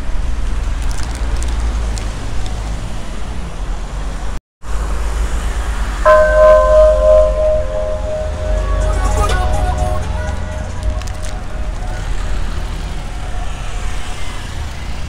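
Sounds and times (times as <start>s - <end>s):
cars passing: 1.9s - 15.0s
held pitched musical tone: 6.0s - 14.7s.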